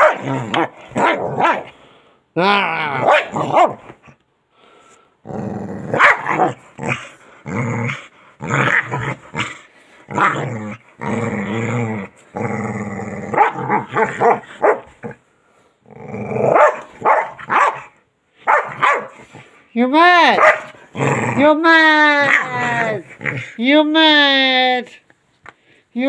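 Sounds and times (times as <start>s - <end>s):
dog growling: 5.2s - 17.6s, 20.4s - 23.6s.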